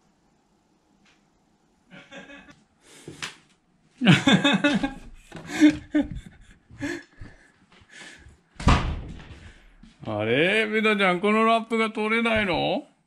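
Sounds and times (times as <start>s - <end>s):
person chuckling: 1.9s - 2.6s, 4.0s - 8.2s.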